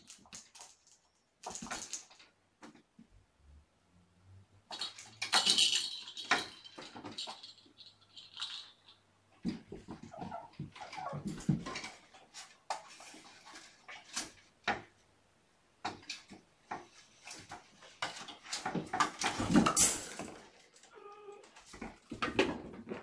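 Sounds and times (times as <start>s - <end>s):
toys rattling clatter: 0.0s - 2.3s, 4.7s - 9.0s, 17.2s - 20.9s.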